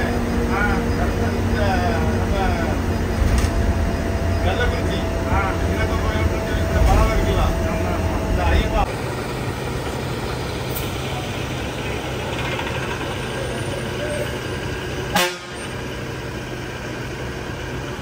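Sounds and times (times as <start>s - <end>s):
background chatter: 0.0s - 8.9s, 10.8s - 14.7s
bus diesel engine idling: 0.0s - 18.0s.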